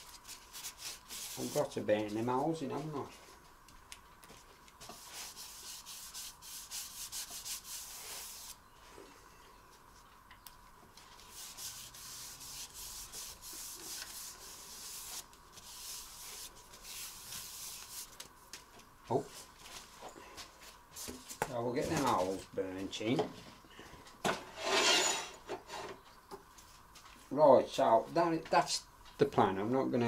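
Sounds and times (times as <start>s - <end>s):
paper towel wiping wood: 0.0s - 3.0s, 4.8s - 8.6s, 11.2s - 18.2s.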